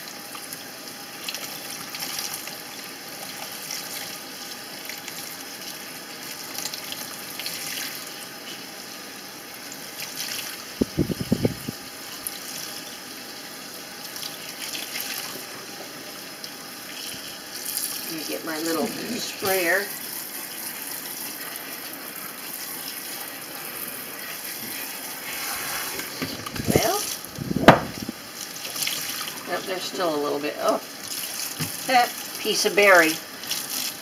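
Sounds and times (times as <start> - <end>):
faucet water running into sink: 9.7 - 34.0
knocks: 27.6 - 28.0.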